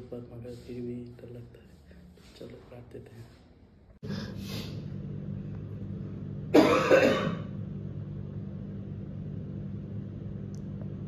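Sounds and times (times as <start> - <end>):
steady low hum: 0.0 - 11.0
person clearing throat: 6.5 - 7.5.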